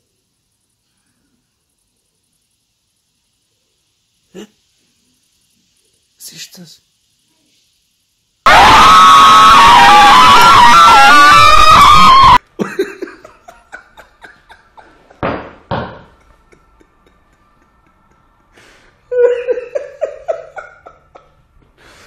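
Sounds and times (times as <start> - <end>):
distorted scream: 8.5 - 12.4
man laughing: 12.6 - 15.2, 16.2 - 18.3, 19.1 - 21.4.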